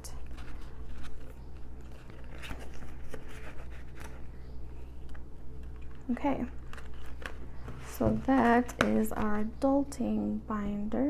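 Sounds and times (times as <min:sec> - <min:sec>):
low hum: 0:00.0 - 0:11.0
paper and plastic rustling: 0:00.2 - 0:04.3, 0:05.6 - 0:09.5.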